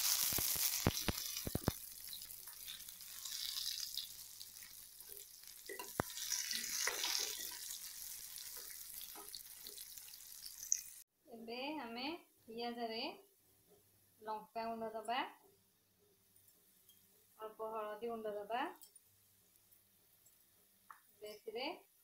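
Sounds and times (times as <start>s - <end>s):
onions sizzling in hot oil: 0.0s - 11.0s.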